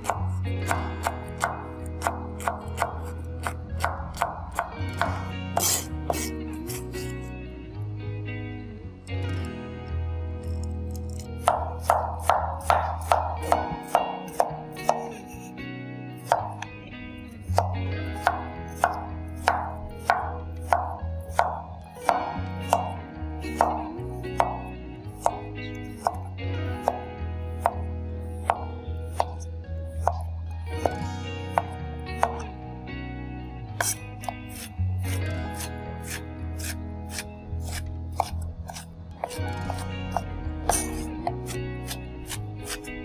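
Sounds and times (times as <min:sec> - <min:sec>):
cleaver chopping on wooden board: 0:00.0 - 0:06.8, 0:11.0 - 0:15.4, 0:16.2 - 0:16.7, 0:17.5 - 0:25.4, 0:26.0 - 0:27.8, 0:28.4 - 0:29.4, 0:30.0 - 0:32.4, 0:33.8 - 0:42.9
background music: 0:00.0 - 0:43.0.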